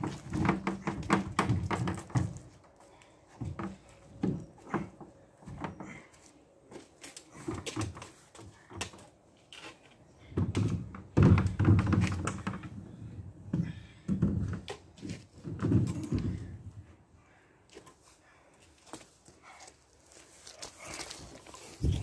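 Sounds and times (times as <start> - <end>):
bumping and rustling: 0.0 - 2.6, 10.3 - 12.9, 13.5 - 16.7
knocks and thumps of handling: 0.0 - 2.7, 10.3 - 12.8, 13.5 - 16.6.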